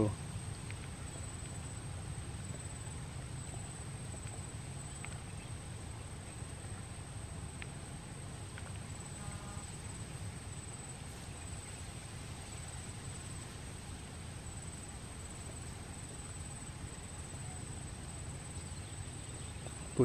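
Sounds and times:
tiny ticks: 0:00.6 - 0:01.6, 0:03.5 - 0:05.4, 0:07.5 - 0:07.8
high-pitched insect trill: 0:08.8 - 0:20.0.

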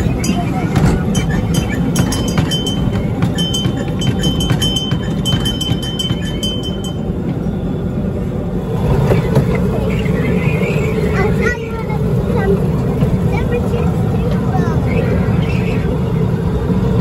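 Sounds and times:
carriage clicks and clinks: 0:00.0 - 0:07.1
miniature train rumbling on track: 0:00.0 - 0:17.0.

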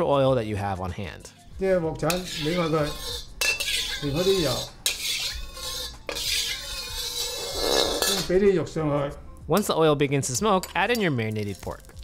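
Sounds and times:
metal spatula scraping a wok: 0:02.0 - 0:08.4.

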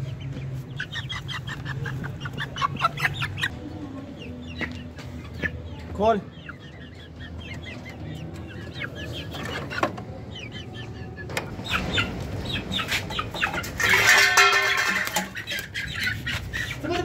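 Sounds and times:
chickens clucking: 0:00.0 - 0:17.0.

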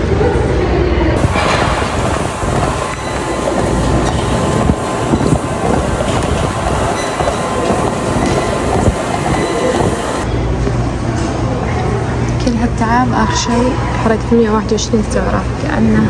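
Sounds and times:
footfalls on treadmill deck: 0:01.2 - 0:10.2
treadmill motor and belt rumble: 0:01.2 - 0:10.3.

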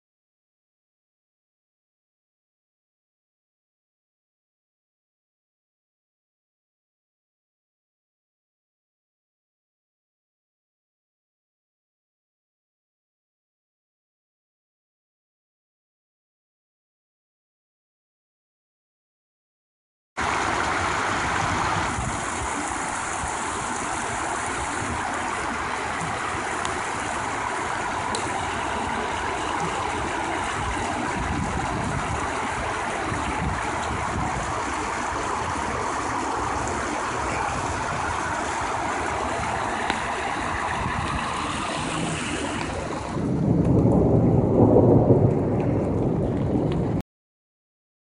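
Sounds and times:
water rushing over concrete: 0:20.2 - 0:47.0
low rumble: 0:20.6 - 0:47.0.

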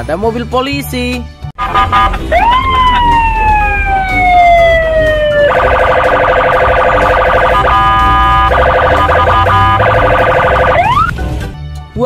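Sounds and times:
electronic police siren: 0:01.7 - 0:11.1.

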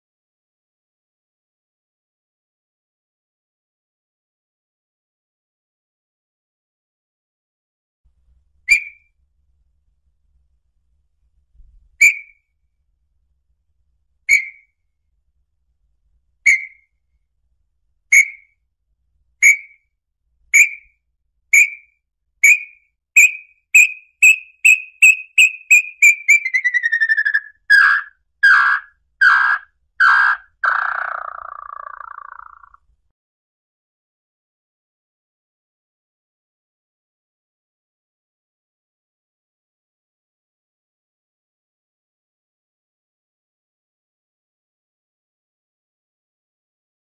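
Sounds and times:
tinamou whistled song: 0:08.7 - 0:09.1, 0:12.0 - 0:12.5, 0:14.3 - 0:14.7, 0:16.5 - 0:16.9, 0:18.1 - 0:18.6, 0:19.4 - 0:19.9, 0:20.6 - 0:32.8
bird quavering trill: 0:21.6 - 0:32.8.

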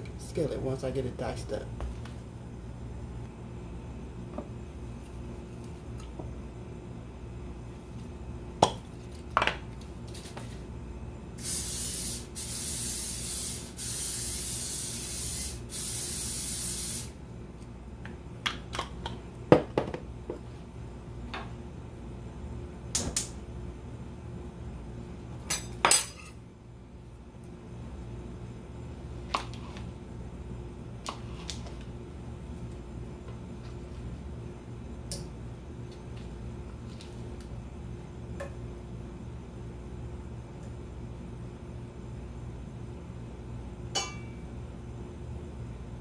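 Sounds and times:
spray bottle hissing: 0:11.4 - 0:17.1.

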